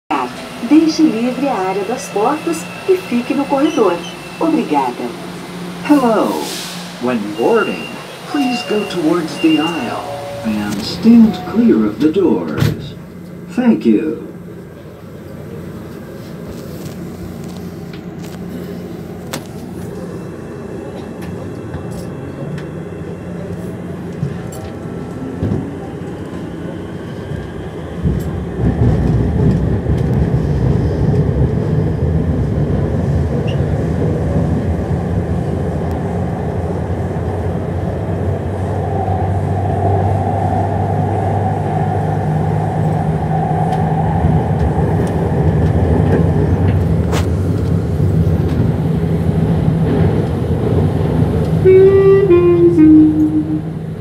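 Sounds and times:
wheels rumbling on rail: 0.0 - 54.0
train whine rising in pitch: 0.1 - 13.4, 38.4 - 45.3, 51.5 - 54.0
steady higher tone: 0.2 - 14.4, 51.6 - 53.8.

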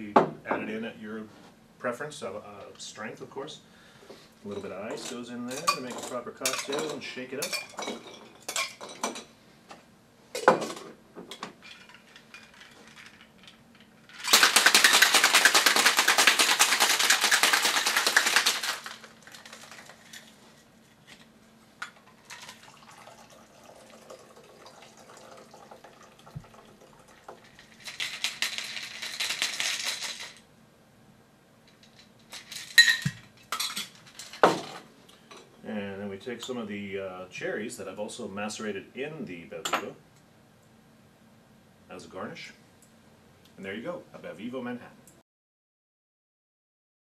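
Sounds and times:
ice rattling in cocktail shaker: 11.6 - 20.3, 22.0 - 30.4, 31.8 - 34.5
cocktail pouring: 14.1 - 20.2, 22.0 - 30.4.

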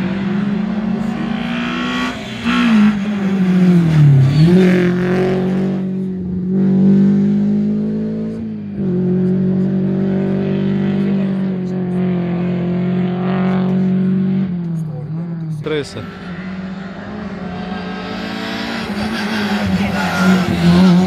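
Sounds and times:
rally car engine under hard driving: 0.0 - 21.0.

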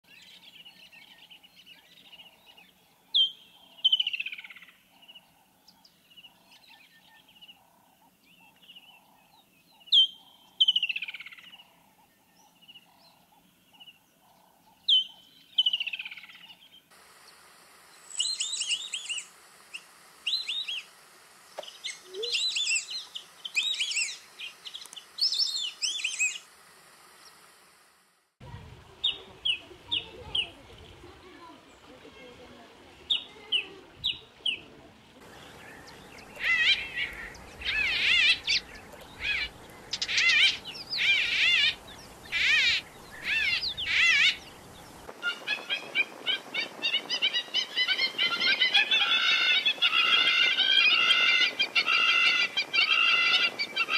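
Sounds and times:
rapid high bird chirping: 18.0 - 26.5, 35.2 - 53.9
bird calling with descending trill: 18.1 - 20.9, 21.6 - 26.4, 35.2 - 53.9.

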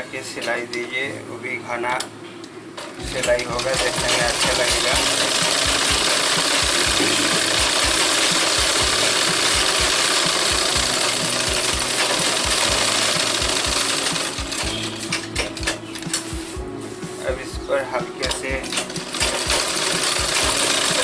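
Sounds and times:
sewing machine stitching: 3.0 - 16.2, 18.2 - 21.0.

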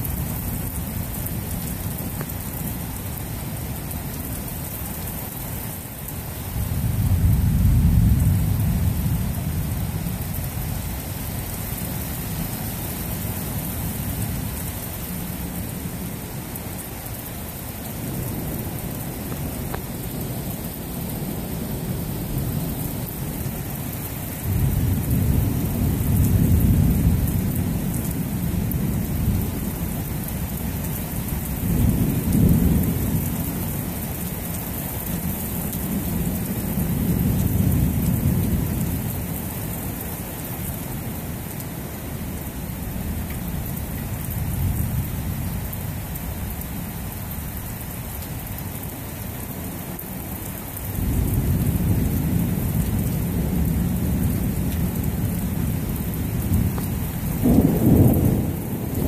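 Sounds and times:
rain hissing: 0.0 - 59.0
rolling thunder: 51.0 - 59.0.

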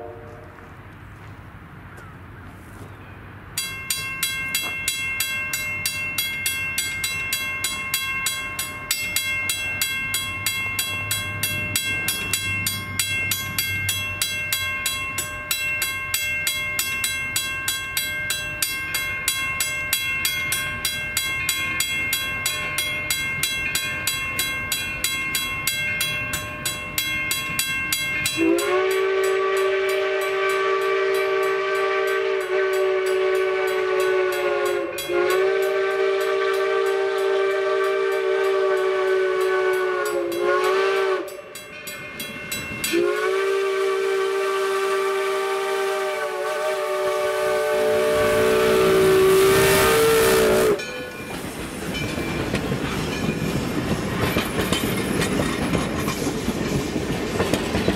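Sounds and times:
steam locomotive whistle: 0.0 - 0.7, 28.3 - 41.6, 42.8 - 51.4
crossing bell ringing: 2.9 - 44.9, 46.6 - 57.9.

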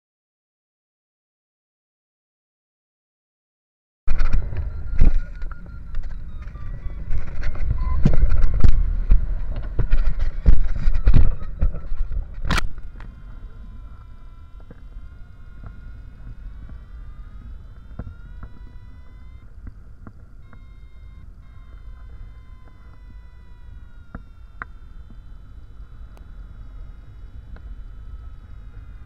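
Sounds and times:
sliding multi-pitch tone: 4.1 - 29.0
wind rumbling on microphone: 4.1 - 29.0
faint clicks: 4.3 - 25.4.

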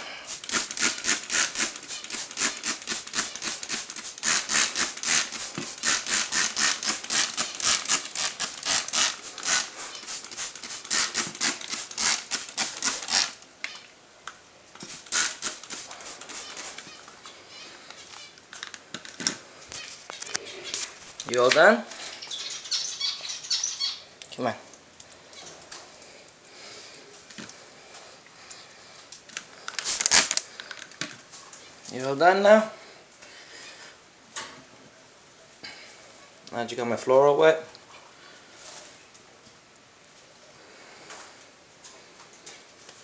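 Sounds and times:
spray bottle squirting: 0.3 - 13.8, 14.8 - 17.0, 29.6 - 30.6.

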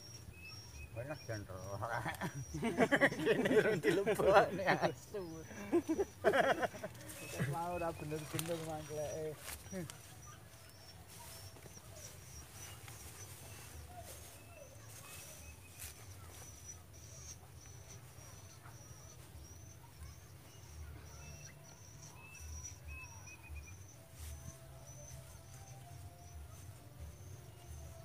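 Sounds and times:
lower animal chirp: 7.1 - 28.0.

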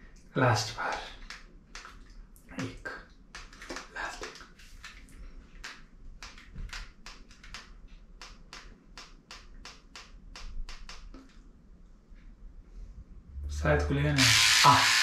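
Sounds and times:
hair clipper rapid clicking: 14.2 - 15.0.

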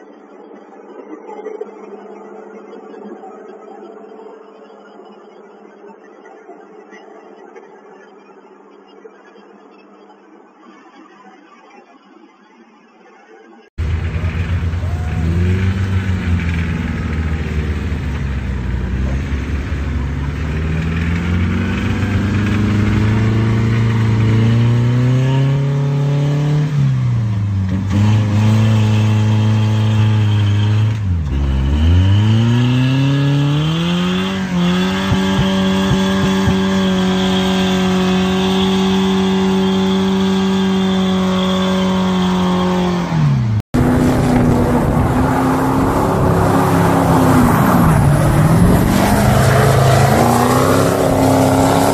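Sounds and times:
engine revving hard: 13.8 - 51.9.

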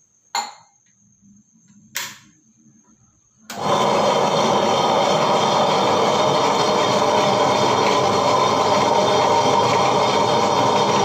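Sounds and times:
wet grinder running: 3.5 - 11.0.

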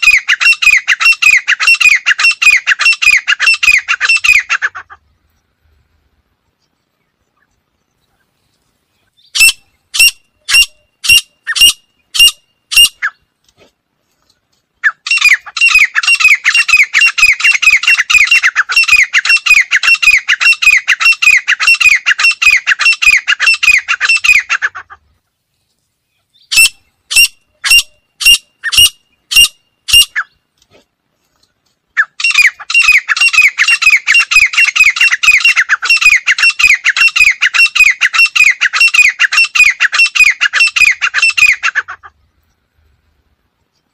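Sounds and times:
francolin calling: 0.0 - 5.1, 9.0 - 13.3, 14.8 - 25.0, 26.1 - 30.4, 31.9 - 42.3.

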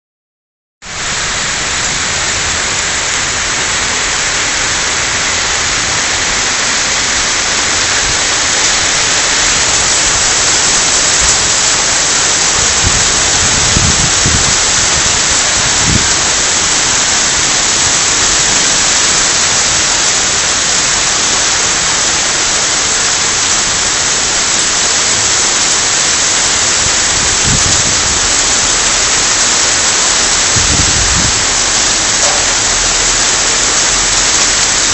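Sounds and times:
heavy rain hissing: 0.8 - 34.9
low rumbles: 30.3 - 34.9.

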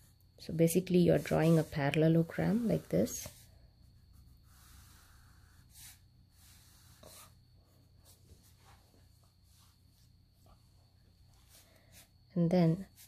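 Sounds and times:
low steady hum: 0.0 - 13.0
pencil scratching on paper: 0.9 - 7.4.

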